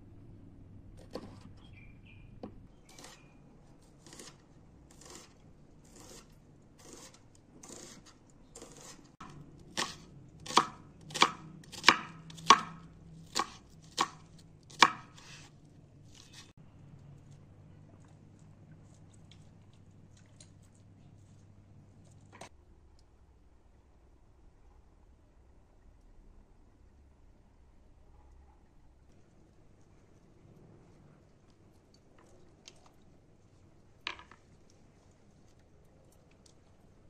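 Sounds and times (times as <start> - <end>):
knife slicing onion: 2.9 - 16.5.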